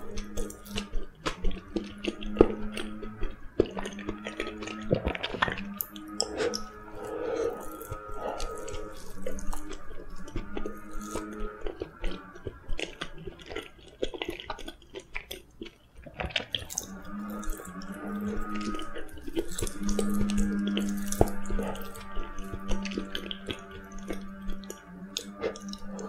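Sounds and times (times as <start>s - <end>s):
low hum: 0.0s - 13.7s
wet chewing: 0.0s - 26.0s
mouth clicks and lip smacks: 0.1s - 26.0s.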